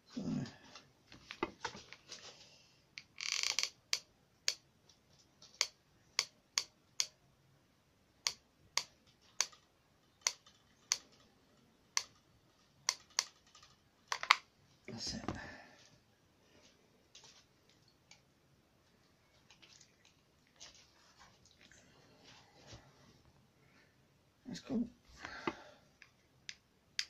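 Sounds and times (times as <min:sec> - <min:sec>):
handling rustle: 0:19.3 - 0:22.9.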